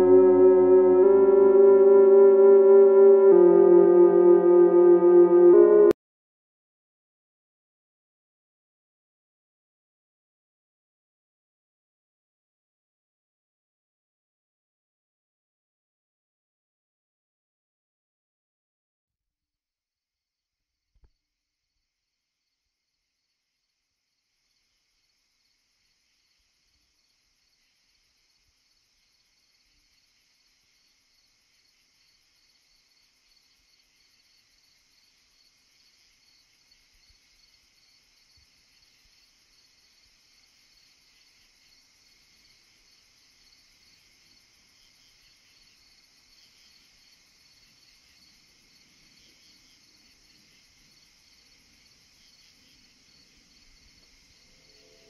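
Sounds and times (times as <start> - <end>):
insects chirring: 29.0 - 55.0.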